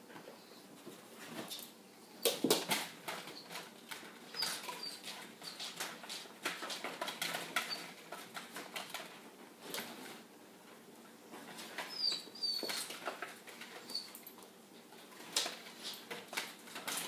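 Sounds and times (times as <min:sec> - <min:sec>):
dog claws scratching on floor: 0:01.3 - 0:10.2, 0:11.4 - 0:17.0
high puppy squeaks: 0:04.3 - 0:05.8, 0:11.8 - 0:13.0, 0:13.8 - 0:14.2.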